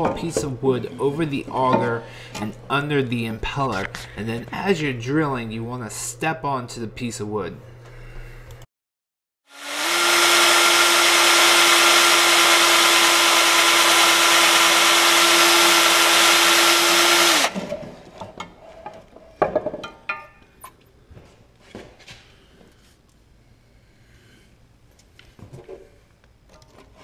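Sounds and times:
electric drill boring metal: 9.5 - 17.6.

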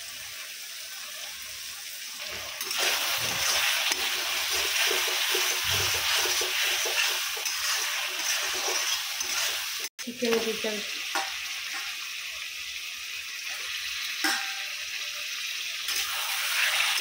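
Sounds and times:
masala sizzling in oil: 0.0 - 17.0
spatula scraping pan: 2.3 - 9.9, 15.9 - 17.0.

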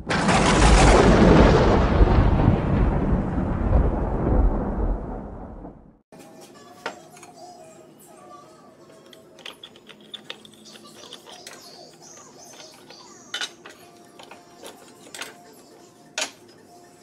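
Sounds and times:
metal parts clinking and scraping: 8.9 - 16.7.

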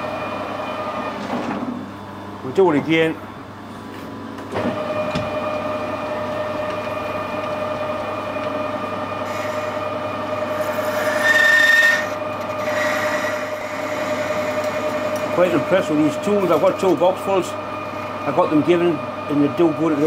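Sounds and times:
lathe spindle whine: 4.5 - 20.0
lathe tool cutting metal: 7.2 - 20.0.

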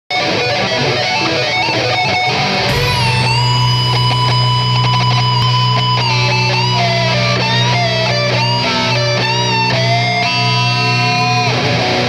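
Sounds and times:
electric guitar solo: 0.1 - 12.0
bass and drums: 2.6 - 8.5.

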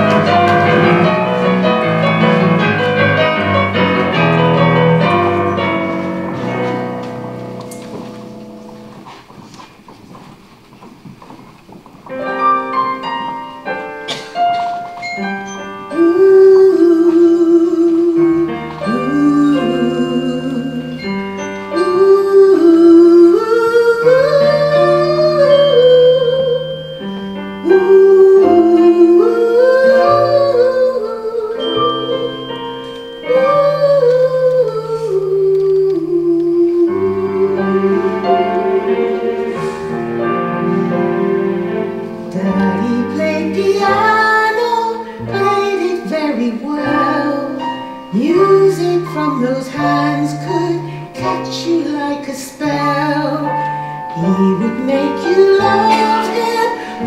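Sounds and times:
keyboard chords: 0.0 - 10.4, 12.1 - 57.0
woman singing with vibrato: 15.8 - 27.0, 27.6 - 41.2, 42.2 - 57.0.

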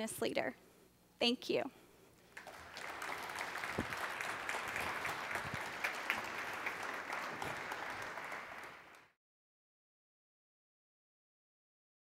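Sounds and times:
audience applauding: 2.3 - 9.2.

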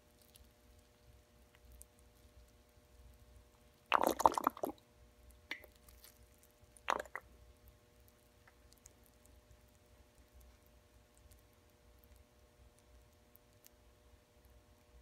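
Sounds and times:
water dripping on sponge: 3.8 - 5.9, 6.8 - 7.4.

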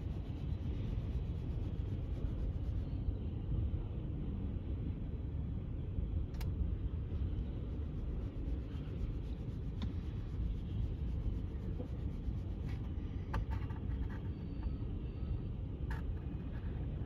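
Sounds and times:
faint sharp clicks: 6.3 - 6.5.

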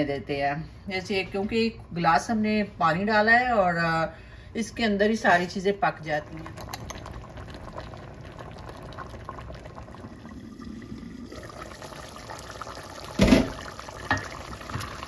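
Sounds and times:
pot boiling and bubbling: 4.6 - 15.0.

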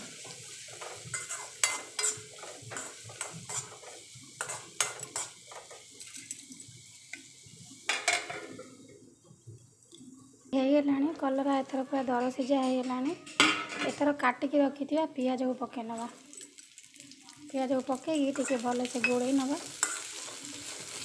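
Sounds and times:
metal spoon scraping pan: 0.8 - 5.8
steel lid clanking on pan: 12.2 - 14.0.

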